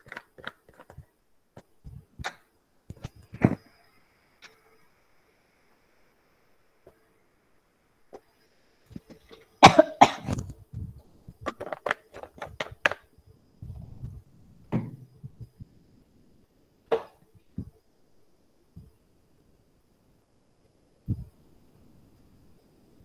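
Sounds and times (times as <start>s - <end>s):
person coughing: 9.6s - 10.4s.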